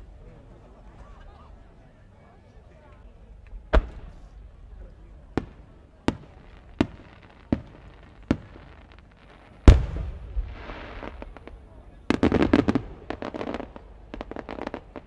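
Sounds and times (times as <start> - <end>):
firework bangs: 3.7 - 4.5, 5.2 - 15.0
deep echoing boom: 9.7 - 10.6.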